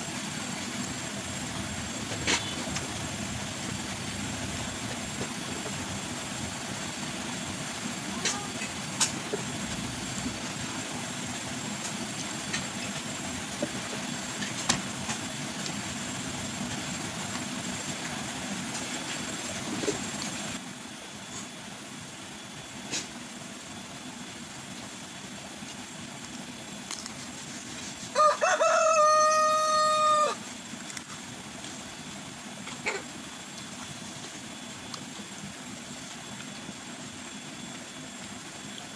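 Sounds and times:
steady background hiss: 0.0 - 38.9
rooster crowing: 28.1 - 30.4.

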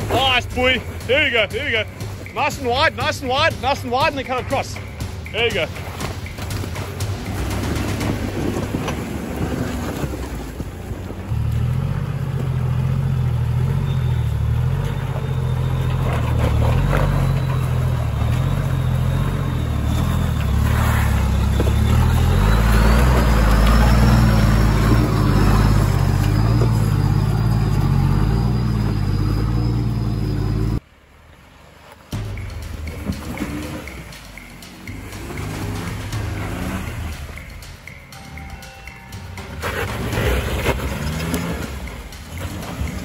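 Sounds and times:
engine running at low revs: 6.2 - 30.8.

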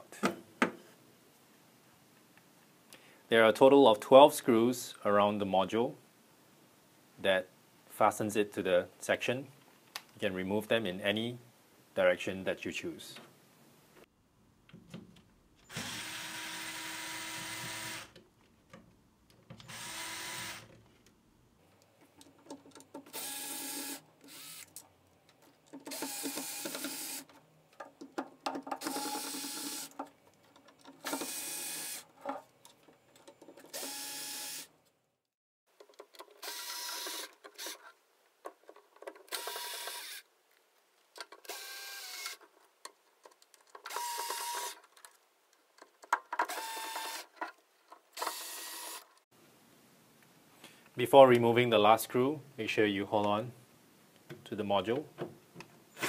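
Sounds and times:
cordless screwdriver whining: 19.6 - 20.7, 23.1 - 24.7, 25.9 - 27.3, 28.8 - 30.0, 31.0 - 32.0, 33.7 - 34.7, 36.4 - 37.8, 39.3 - 40.2, 41.5 - 42.4, 43.9 - 44.8.

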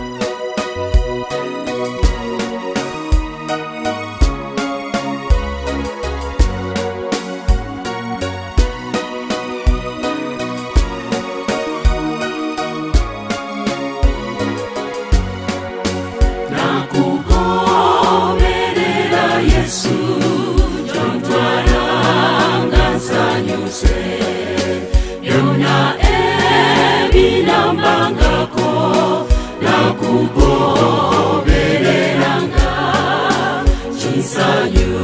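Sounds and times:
steady drum beat: 15.0 - 35.0
choir singing gospel in harmony: 16.2 - 35.0.

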